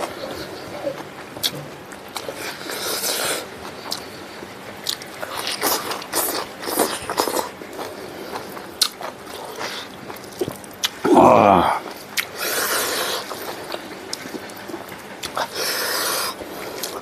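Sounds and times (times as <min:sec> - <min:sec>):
chewing and mouth sounds: 0:00.0 - 0:17.0.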